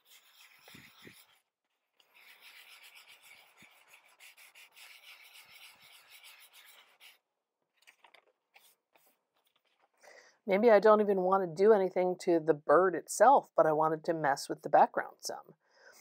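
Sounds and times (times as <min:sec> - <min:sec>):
sandpaper scratching paper: 0:00.0 - 0:07.2.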